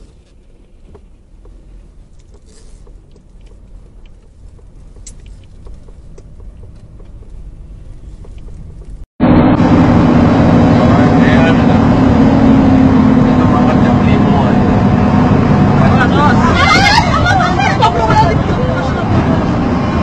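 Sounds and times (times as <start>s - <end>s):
car road and engine rumble: 0.0s - 20.0s
loud engine drone: 9.2s - 20.0s.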